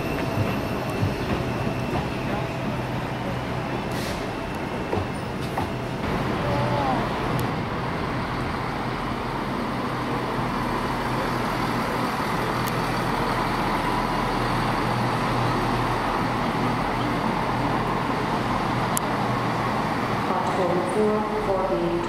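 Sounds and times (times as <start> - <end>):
train engine rumble: 0.0 - 22.0.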